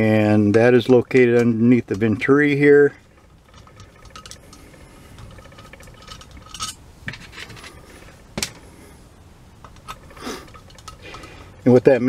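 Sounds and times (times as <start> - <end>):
screwdriver scraping metal: 0.8 - 8.2, 9.7 - 11.4.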